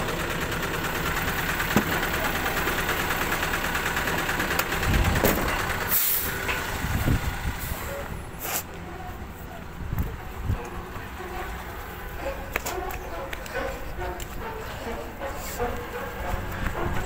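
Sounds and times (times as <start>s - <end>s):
diesel truck engine running: 0.0s - 17.0s
air brake hisses: 5.9s - 6.4s, 7.6s - 8.8s.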